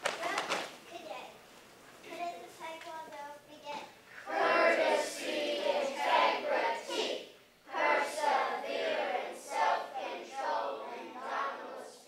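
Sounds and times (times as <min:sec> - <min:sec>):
children chanting in unison: 0:04.2 - 0:12.0.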